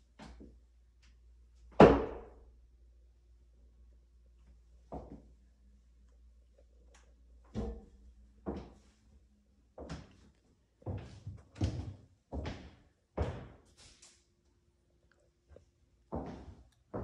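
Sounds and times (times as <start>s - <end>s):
footsteps on hardwood floor: 7.5s - 8.9s, 9.8s - 13.6s, 16.1s - 17.0s.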